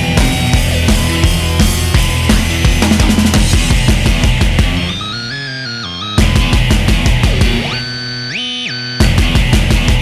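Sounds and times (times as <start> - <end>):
driving drum beat: 0.0 - 5.0, 6.2 - 7.8, 9.0 - 10.0
heavy metal rock music: 0.0 - 10.0.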